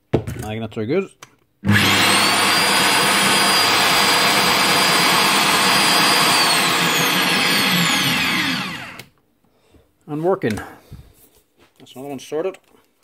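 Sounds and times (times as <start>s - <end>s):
drill motor whining: 1.6s - 9.1s.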